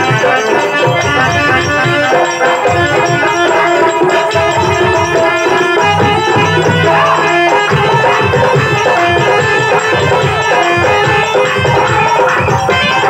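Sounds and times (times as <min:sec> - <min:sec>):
harmonium melody: 0:00.0 - 0:13.0
hand drum strokes: 0:04.2 - 0:12.1.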